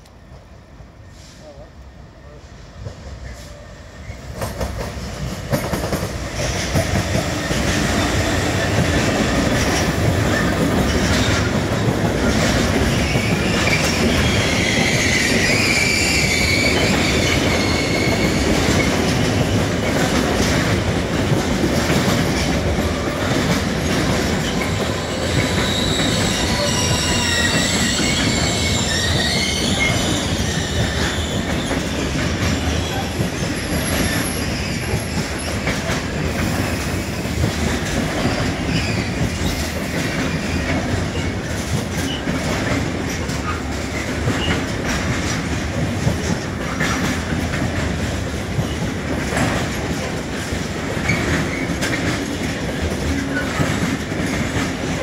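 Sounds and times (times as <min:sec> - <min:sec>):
freight train passing: 0:00.0 - 0:55.0
rail-joint clatter: 0:02.8 - 0:55.0
high-pitched wheel squeal: 0:13.1 - 0:18.4, 0:24.9 - 0:31.8.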